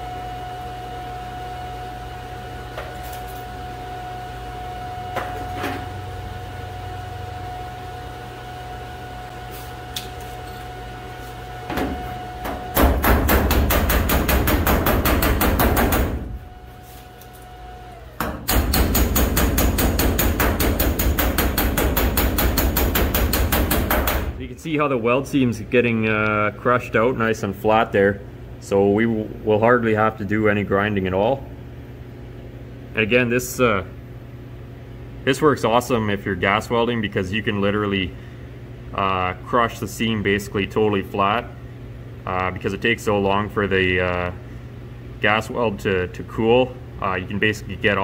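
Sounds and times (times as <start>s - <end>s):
welding arc humming: 9.2s - 25.4s
hammer striking metal: 12.4s - 16.2s, 18.2s - 24.4s.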